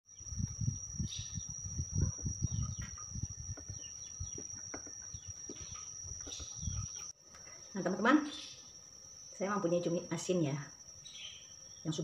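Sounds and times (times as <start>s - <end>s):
birds chirping: 0.1s - 8.8s
high-pitched whine: 0.1s - 12.0s.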